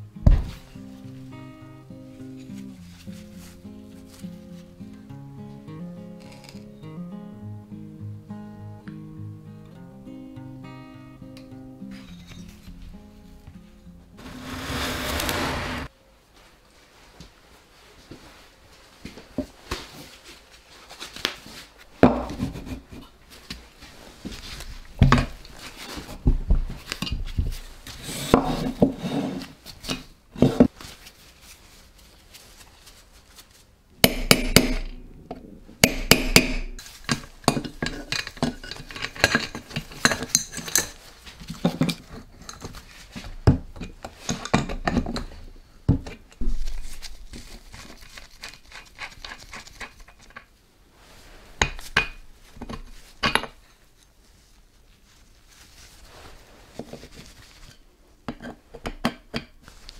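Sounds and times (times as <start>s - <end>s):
hand tools clinking on metal: 37.4s - 41.0s.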